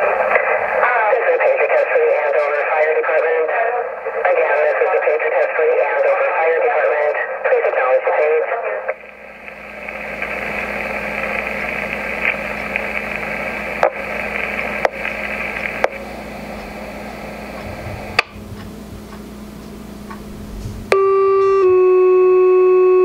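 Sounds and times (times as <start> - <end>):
sharp radio clicks: 0.0 - 16.8, 17.5 - 18.4
radio static hiss: 0.0 - 21.6
two-tone paging tones: 20.9 - 23.0.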